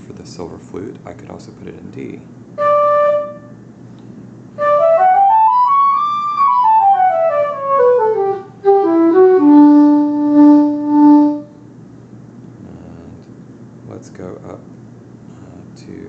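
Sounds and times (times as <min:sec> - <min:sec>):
synthesized flute playing a scale: 0:02.6 - 0:03.6, 0:04.6 - 0:11.6.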